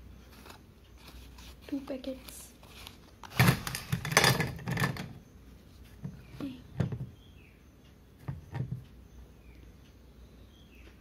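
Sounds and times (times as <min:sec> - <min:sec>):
pencils clattering onto steel plate: 0:03.3 - 0:05.2.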